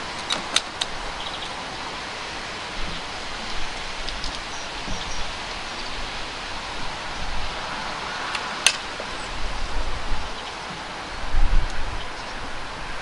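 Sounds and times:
wind buffeting microphone: 0.0 - 13.0
air rifle action click: 0.2 - 1.0.

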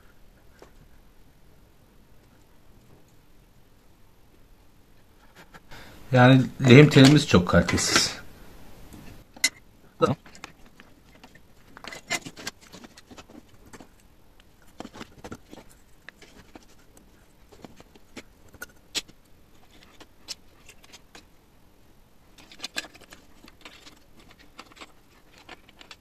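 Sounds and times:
small clicks and rustles of handling: 0.4 - 1.0, 2.2 - 4.4, 8.9 - 21.4, 22.3 - 26.0.

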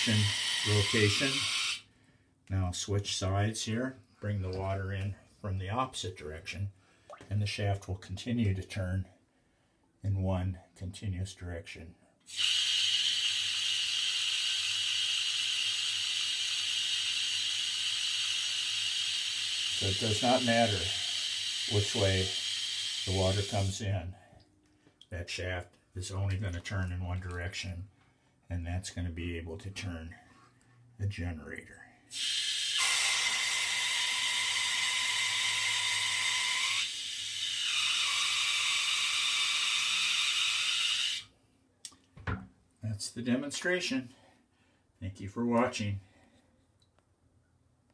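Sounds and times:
hose jet spraying into water: 0.0 - 1.8, 12.3 - 23.8, 32.1 - 41.2.

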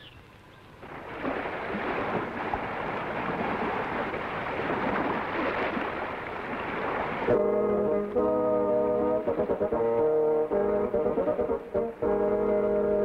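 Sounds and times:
sea waves: 0.0 - 13.0
wind: 0.0 - 13.0.

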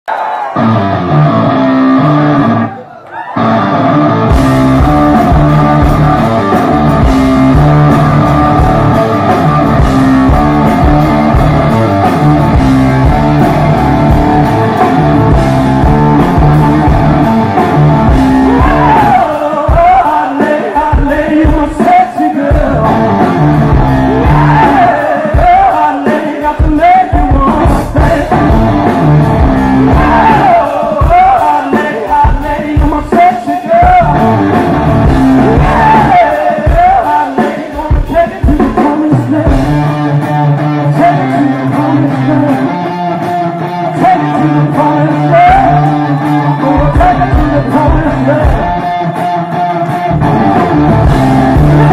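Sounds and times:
bass and drums: 0.6 - 2.6, 3.4 - 51.9
electric guitar riff: 0.6 - 21.6, 22.4 - 26.4, 27.6 - 32.6, 33.7 - 51.9
man singing lead vocal: 18.0 - 29.1, 29.8 - 50.1, 51.4 - 51.9.

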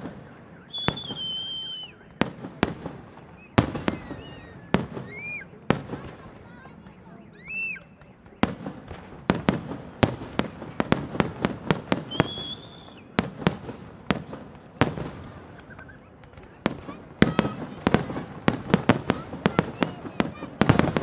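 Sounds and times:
high firework whistle: 0.0 - 5.6, 7.3 - 8.6, 11.9 - 13.2
fireworks bursting: 0.0 - 21.0.

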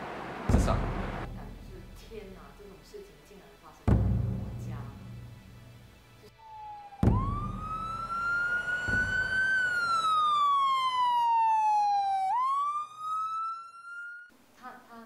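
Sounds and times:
low rumbling bursts: 0.0 - 2.5
siren wailing: 6.3 - 14.3.

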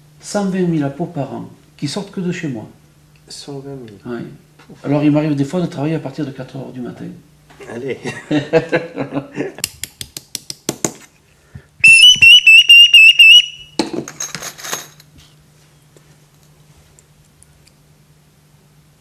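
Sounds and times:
shrill warbling bird call whistle: 11.8 - 13.8.

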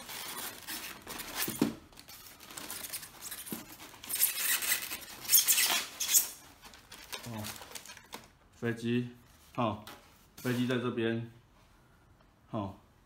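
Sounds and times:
plastic scraping against foam: 0.0 - 8.1.

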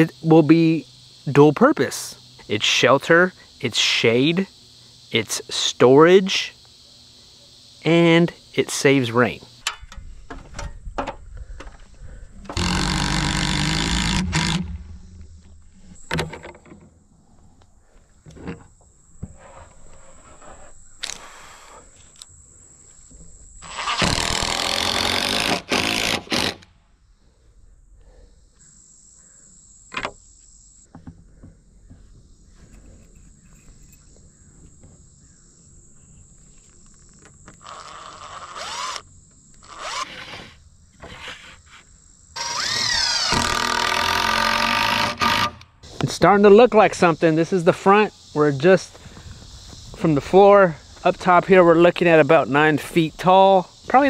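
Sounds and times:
impact driver driving screws: 12.6 - 14.7.

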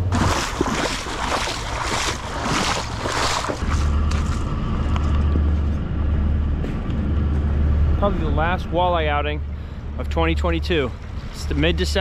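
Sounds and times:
boots splashing through creek: 0.0 - 5.4
diesel engines droning: 0.0 - 12.0.

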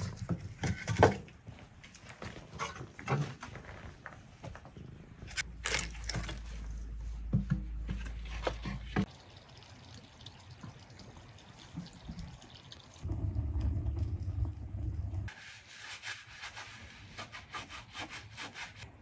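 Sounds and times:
low rumble: 13.0 - 15.3.

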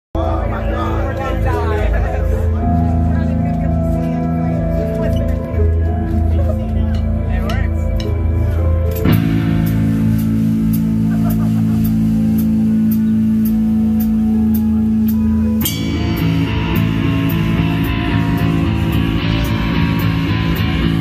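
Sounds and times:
live heavy metal music: 0.2 - 21.0
low sustained guitar chord: 9.0 - 21.0
high ticking beat: 9.1 - 21.0.

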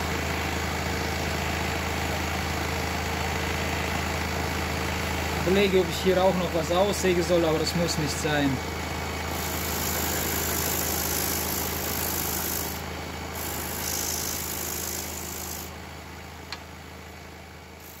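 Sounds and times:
scroll saw motor hum: 9.3 - 15.8, 17.8 - 18.0.

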